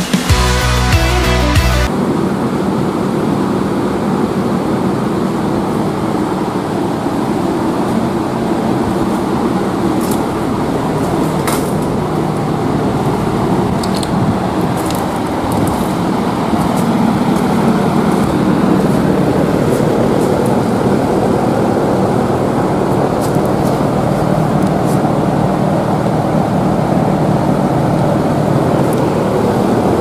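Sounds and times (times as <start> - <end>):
drum fan running: 0.0 - 2.4, 5.2 - 30.0.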